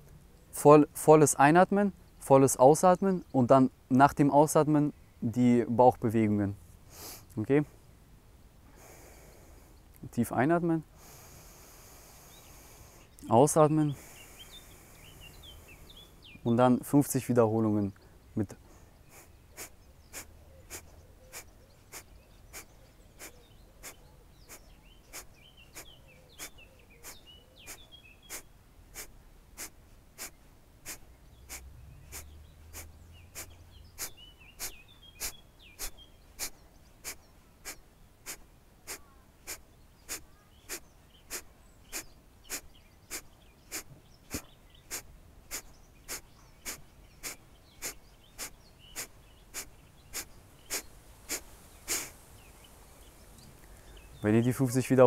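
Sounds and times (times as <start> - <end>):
forceful nasal exhalations: 6.9 - 7.4, 8.7 - 9.8, 11.0 - 13.2, 14.0 - 16.2, 18.7 - 52.2.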